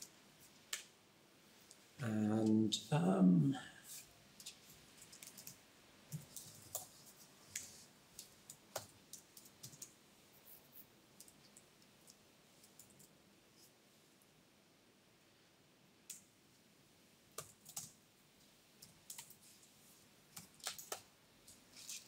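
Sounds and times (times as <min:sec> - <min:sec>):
laptop keyboard typing: 0:04.4 - 0:10.0, 0:11.2 - 0:13.2, 0:17.4 - 0:18.0, 0:18.8 - 0:19.4, 0:20.3 - 0:21.1.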